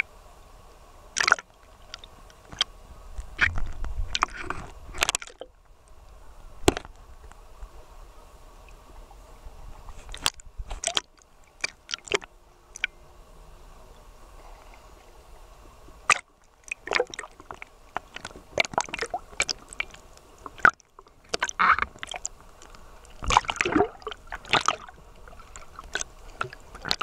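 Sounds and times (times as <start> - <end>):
water sloshing and gurgling: 1.1 - 7.9, 8.5 - 13.0, 14.2 - 27.0
splashy crackles of swimming: 23.1 - 27.0.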